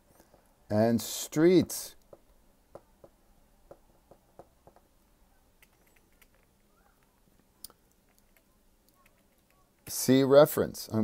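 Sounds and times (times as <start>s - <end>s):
stylus tapping on tablet screen: 2.0s - 4.9s.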